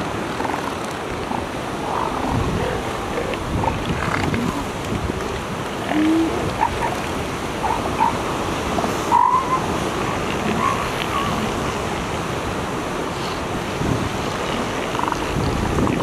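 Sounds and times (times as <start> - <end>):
surf: 0.0 - 16.0
elephant seals calling: 5.8 - 12.2, 14.3 - 15.4.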